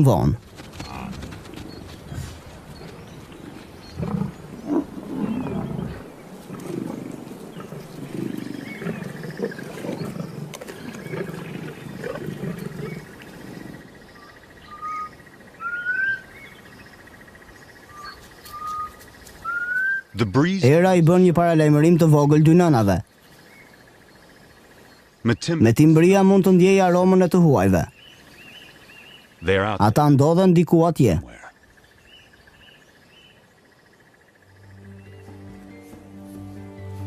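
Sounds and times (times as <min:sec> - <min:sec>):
lions growling and snarling: 0:00.5 - 0:14.3
rising bird whistles: 0:14.2 - 0:16.3, 0:17.9 - 0:20.2.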